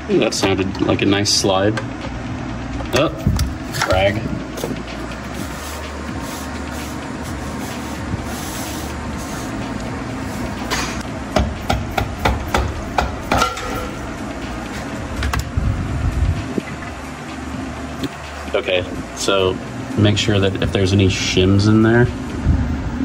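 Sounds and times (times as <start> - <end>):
hammer knocking on metal: 11.3 - 13.9.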